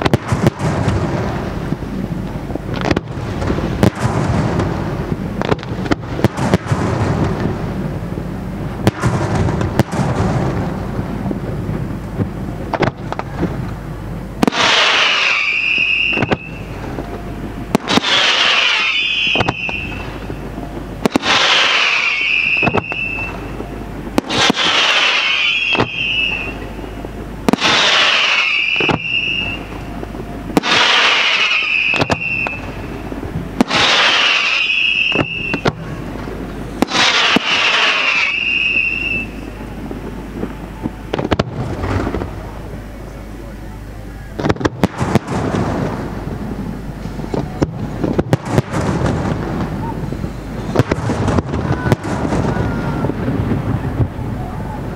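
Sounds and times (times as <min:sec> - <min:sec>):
fireworks bangs: 0:00.0 - 0:43.5, 0:44.3 - 0:54.9
low rumble: 0:00.0 - 0:54.9
sharp firework reports: 0:00.0 - 0:54.9
firework hiss: 0:14.4 - 0:29.9, 0:30.5 - 0:42.8.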